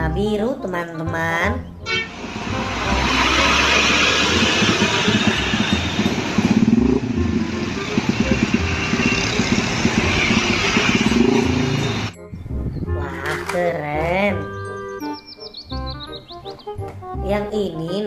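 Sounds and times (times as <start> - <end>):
motorcycle engines: 1.8 - 12.2
truck diesel engine: 1.9 - 12.2.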